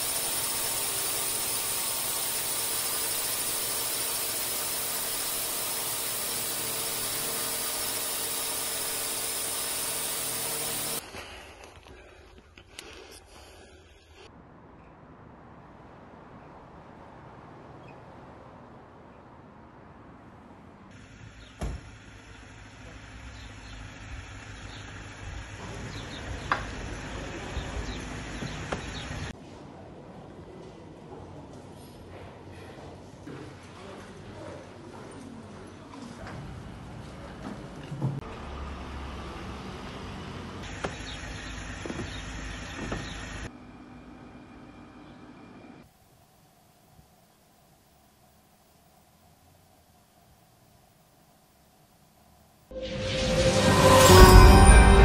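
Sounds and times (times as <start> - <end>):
drone propellers whirring: 0.0 - 11.0
street ambience hiss: 0.0 - 34.9, 35.5 - 44.3, 45.8 - 55.0.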